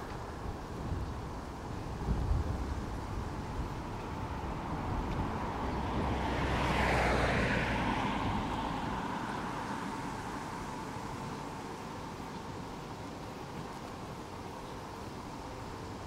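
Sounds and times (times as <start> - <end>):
wind rumble: 0.0 - 12.0
vehicle passing by: 4.1 - 11.7.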